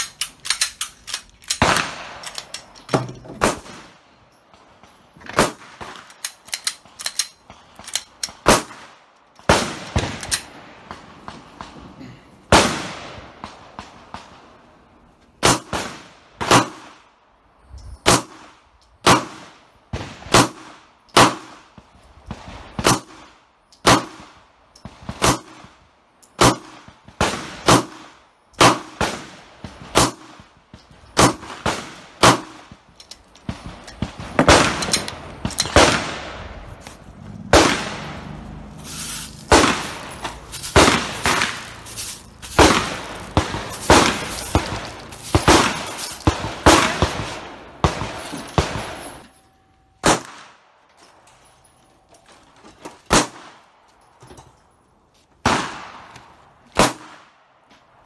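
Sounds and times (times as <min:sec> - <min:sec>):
pistol shots: 0:01.5 - 0:02.4, 0:15.4 - 0:17.0, 0:18.1 - 0:21.6, 0:22.7 - 0:25.8, 0:26.4 - 0:30.5, 0:31.2 - 0:36.6, 0:37.4 - 0:38.4, 0:39.4 - 0:49.2, 0:50.0 - 0:50.6, 0:53.1 - 0:53.6, 0:55.4 - 0:56.2, 0:56.8 - 0:57.3.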